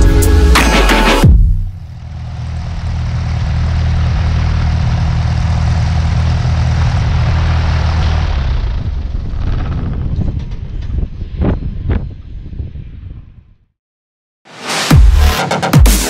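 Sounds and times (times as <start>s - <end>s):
airplane engine idling: 1.7s - 11.2s.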